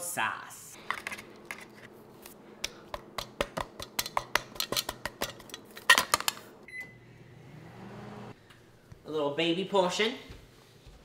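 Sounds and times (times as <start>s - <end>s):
microwave oven humming: 0.8s - 8.6s
microwave beep: 6.6s - 7.2s.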